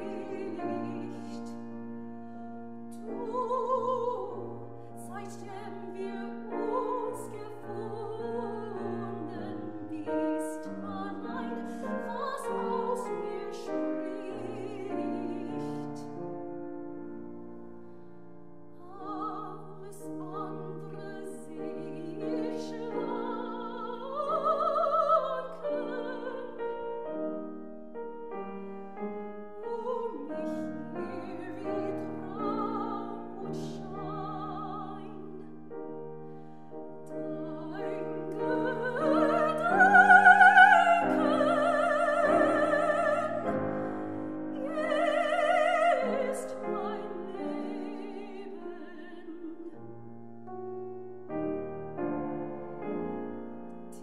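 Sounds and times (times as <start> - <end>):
woman singing with vibrato: 0.0 - 1.6, 3.0 - 16.0, 18.8 - 26.9, 29.6 - 35.5, 37.1 - 49.8
grand piano: 0.0 - 54.0.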